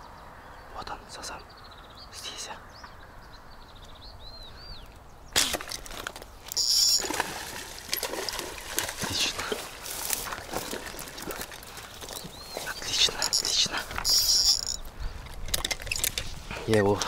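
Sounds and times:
fish splashing in water: 0:07.0 - 0:12.3.

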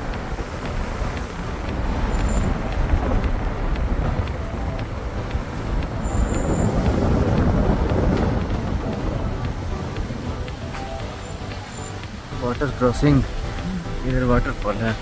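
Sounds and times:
vehicle engine and tyres rumbling: 0:00.0 - 0:15.0
wind buffeting microphone: 0:00.0 - 0:15.0.

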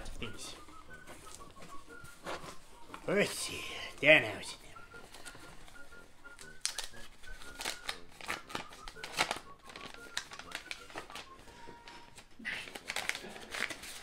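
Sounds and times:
paper envelope tearing: 0:06.6 - 0:11.2, 0:12.6 - 0:14.0.

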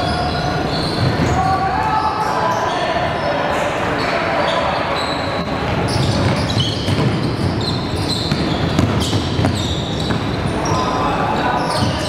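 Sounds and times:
short high squeaks: 0:00.0 - 0:01.5, 0:04.0 - 0:11.0
basketball bouncing: 0:05.8 - 0:10.4.

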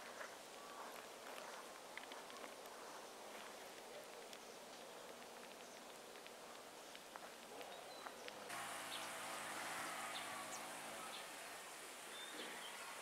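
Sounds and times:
faint high chirps: 0:08.0 - 0:13.0
faint low buzz: 0:08.5 - 0:13.0.

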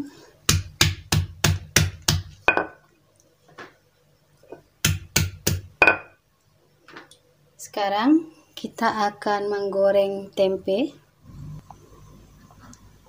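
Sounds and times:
stone pestle pounding in mortar: 0:00.5 - 0:02.8, 0:04.8 - 0:06.1.

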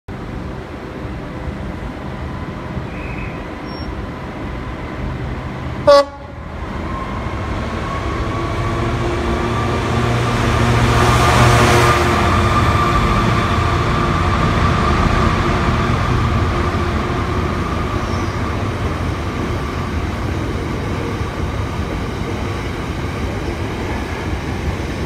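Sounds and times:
diesel locomotive engine: 0:00.1 - 0:25.0
train horn toot: 0:05.8 - 0:06.4.

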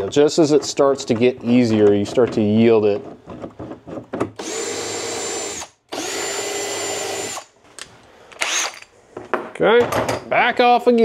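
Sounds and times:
cordless drill whirring: 0:04.4 - 0:07.5, 0:08.4 - 0:08.9.

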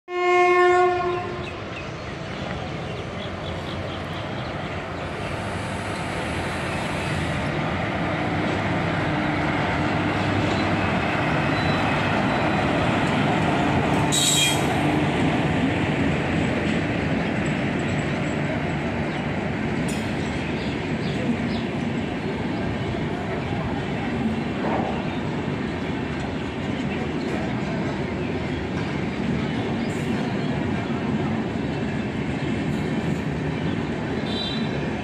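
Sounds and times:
train horn blast: 0:00.1 - 0:01.4, 0:14.1 - 0:14.8
passing train rumble: 0:00.1 - 0:35.0.

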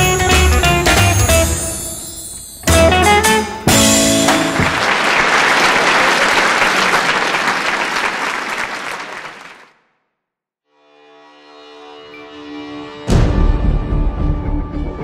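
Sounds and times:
crowd applauding: 0:04.3 - 0:09.8.

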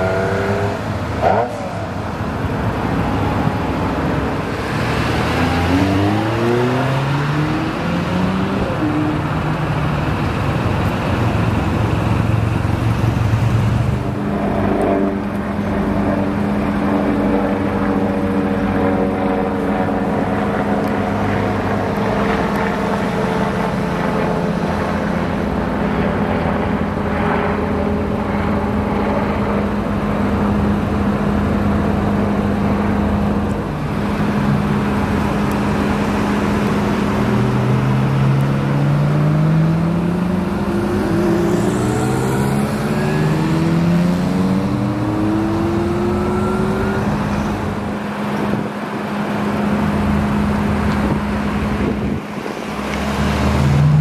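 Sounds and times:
sports car accelerating with upshifts: 0:00.0 - 0:11.0, 0:33.2 - 0:54.0.

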